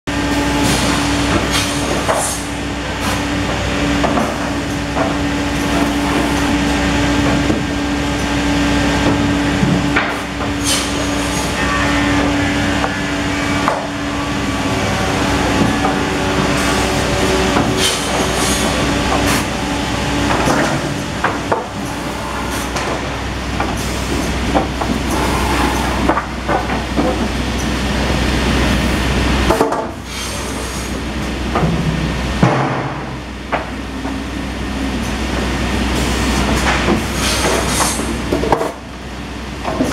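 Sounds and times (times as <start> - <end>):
machine hum: 0.1 - 29.4
boards clattering on steel conveyor: 0.2 - 34.3, 34.9 - 39.9.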